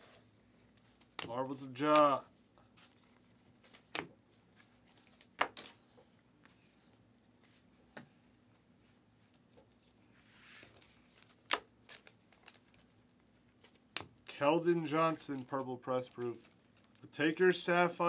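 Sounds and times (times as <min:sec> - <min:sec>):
card rustle: 0:00.0 - 0:05.4.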